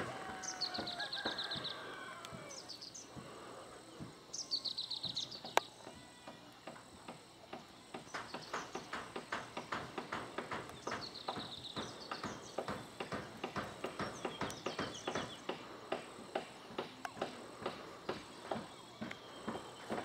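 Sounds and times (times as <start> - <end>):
bird singing fast trill: 4.3 - 5.6, 14.0 - 15.5.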